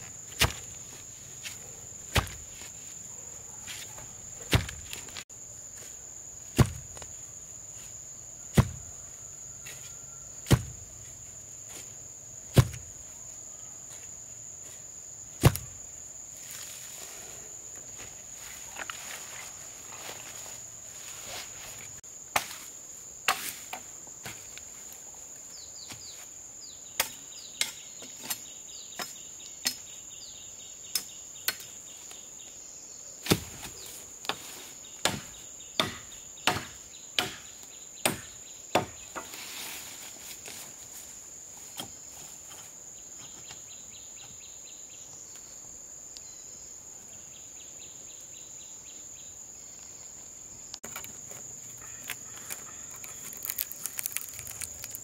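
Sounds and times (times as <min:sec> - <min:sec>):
wood chopping blows: 0:00.3 - 0:00.8, 0:01.4 - 0:02.7, 0:04.4 - 0:05.2, 0:06.5 - 0:07.1, 0:08.5 - 0:08.8, 0:10.4 - 0:10.8, 0:15.4 - 0:15.8.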